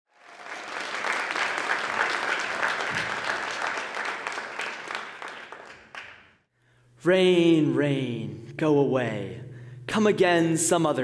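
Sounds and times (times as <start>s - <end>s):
audience applauding: 0.1s - 6.4s.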